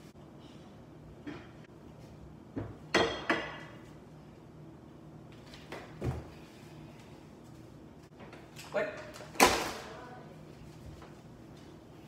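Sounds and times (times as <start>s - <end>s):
dishes clinking and clattering: 2.6s - 3.9s.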